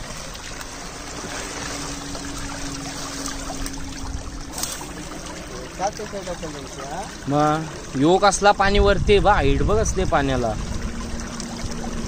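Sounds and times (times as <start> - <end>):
faint steady hum: 0.0 - 12.0
water rushing through sluice gate: 0.0 - 12.0.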